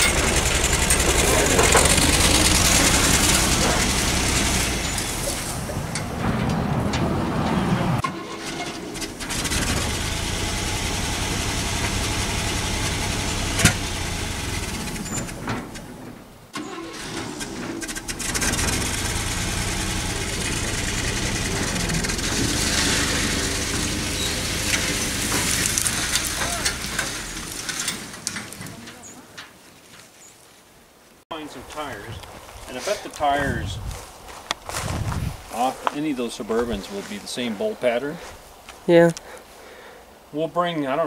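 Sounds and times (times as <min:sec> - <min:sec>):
pickup engine running: 0:00.0 - 0:28.6
engine sharp pop: 0:12.8 - 0:14.0.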